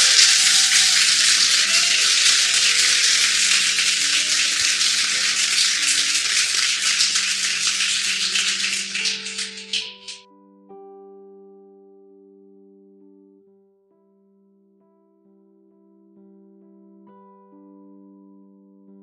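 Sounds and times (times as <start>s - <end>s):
people clapping: 0.0s - 10.2s
soft keyboard music: 0.0s - 19.0s.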